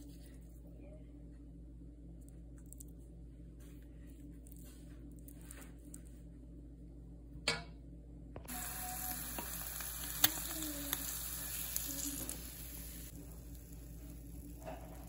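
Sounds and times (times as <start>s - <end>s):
hot oil sizzling in a frying pan: 8.5s - 15.0s.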